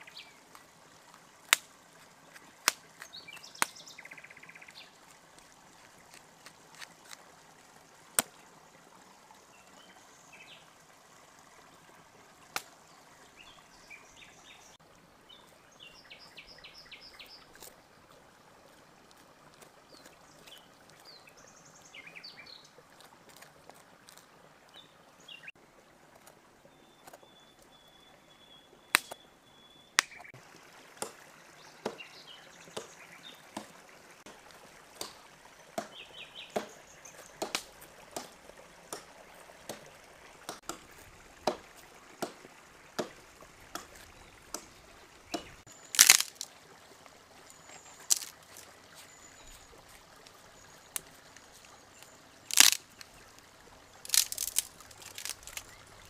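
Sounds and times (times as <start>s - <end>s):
cleaver chopping strikes: 28.9s - 29.2s, 31.8s - 32.0s, 35.0s - 46.5s, 48.1s - 48.3s, 52.5s - 52.8s, 54.1s - 55.6s
faint bird chirps: 48.9s - 53.2s.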